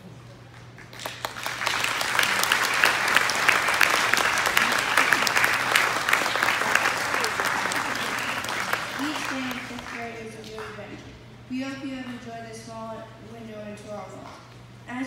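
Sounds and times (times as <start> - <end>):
audience applause: 0.6 - 10.9.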